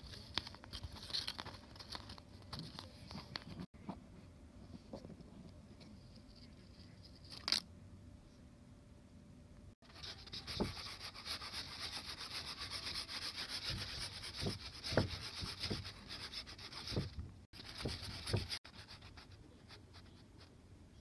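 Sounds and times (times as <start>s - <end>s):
scratchy rubbing strokes: 9.8s - 20.4s.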